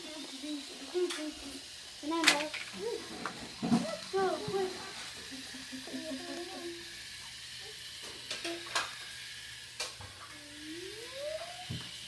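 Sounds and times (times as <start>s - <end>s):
toy train whirring hiss: 0.0s - 12.0s.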